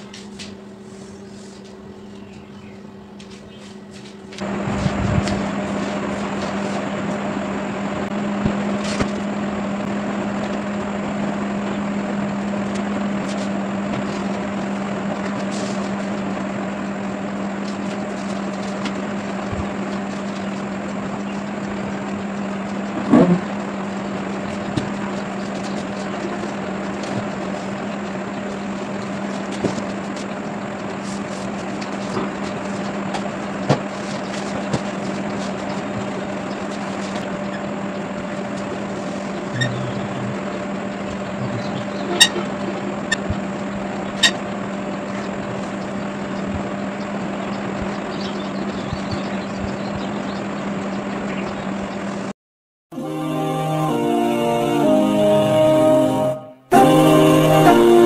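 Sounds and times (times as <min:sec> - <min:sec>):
machine humming: 0:00.0 - 0:52.1, 0:52.9 - 0:58.0.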